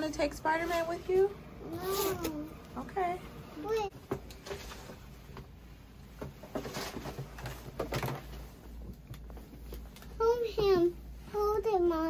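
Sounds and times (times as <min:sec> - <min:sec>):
handling rustles and knocks: 0:03.9 - 0:11.0.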